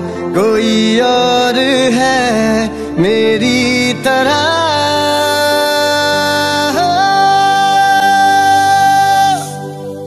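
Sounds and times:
man singing a long note: 0.0 - 10.0.

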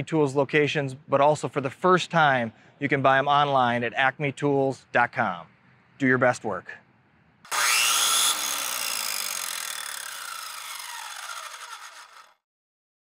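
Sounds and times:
power tool motor whir: 7.5 - 12.4.

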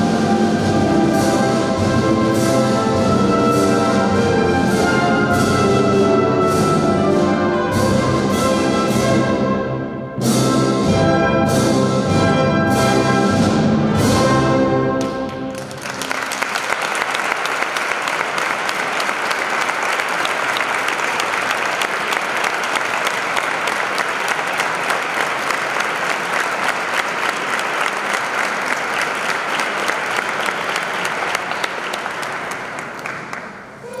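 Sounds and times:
audience applauding: 15.0 - 34.0.

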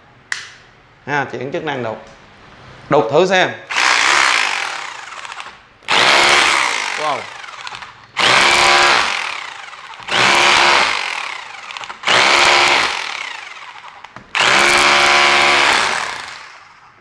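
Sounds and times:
motor winding down: 3.7 - 16.5
rotary hammer chiselling concrete: 3.7 - 16.6.

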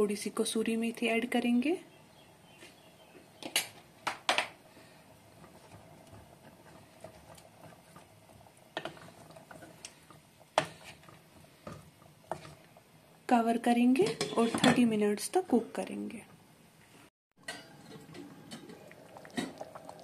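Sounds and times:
faint stirring: 4.7 - 15.0.

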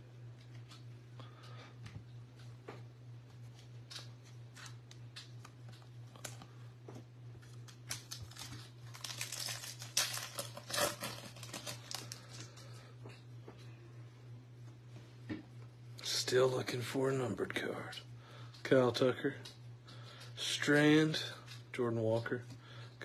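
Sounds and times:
wrapper crinkling as torn open: 7.4 - 12.6.

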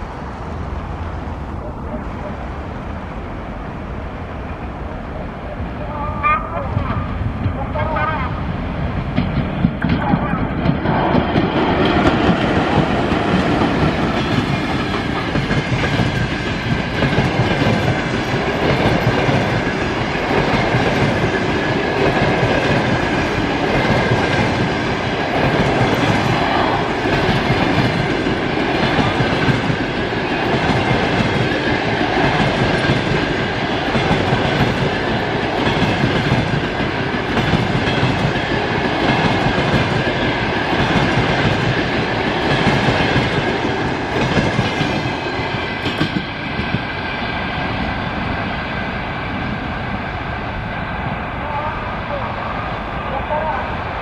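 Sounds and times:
train wheels clattering on rails: 8.6 - 49.4.

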